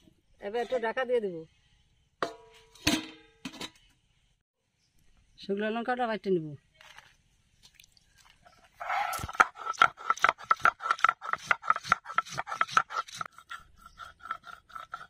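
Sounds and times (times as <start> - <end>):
stone scraping on stone: 8.4 - 15.0.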